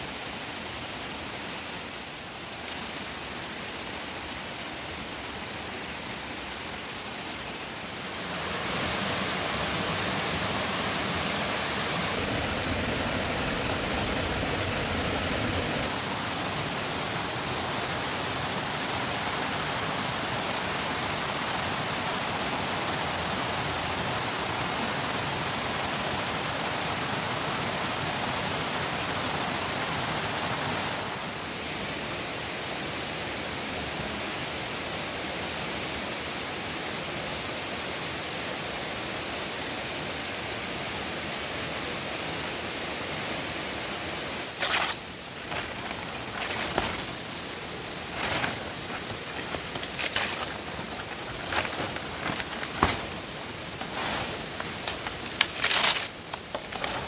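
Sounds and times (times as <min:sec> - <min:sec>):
steady rushing noise: 0:00.0 - 0:21.3, 0:43.9 - 0:56.2.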